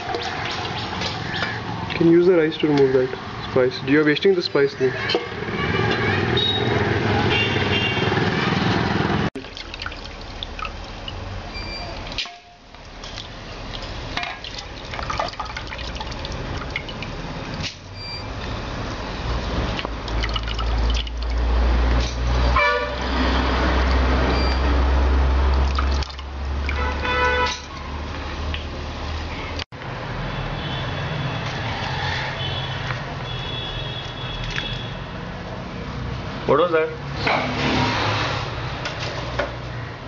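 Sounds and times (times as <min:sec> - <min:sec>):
car horn toots: 0:05.1 - 0:08.1, 0:22.5 - 0:23.1, 0:26.7 - 0:27.6, 0:32.4 - 0:35.0
liquid splashing in a pot: 0:09.4 - 0:18.0, 0:18.9 - 0:22.5, 0:23.8 - 0:27.6.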